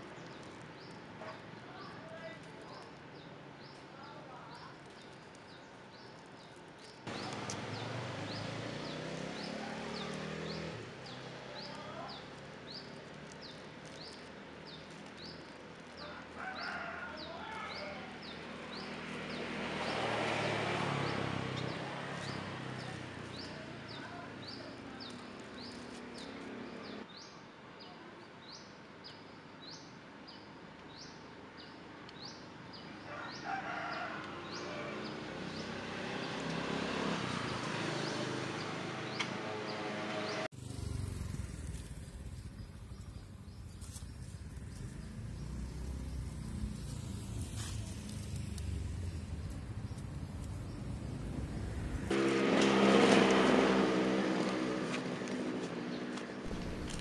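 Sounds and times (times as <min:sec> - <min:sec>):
rooster crowing: 0:16.0 - 0:18.1, 0:33.1 - 0:35.2.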